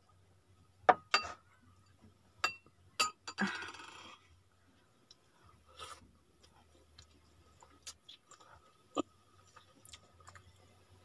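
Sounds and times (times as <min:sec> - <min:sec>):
metal spoon clinking on ceramic bowl: 0:02.4 - 0:03.4.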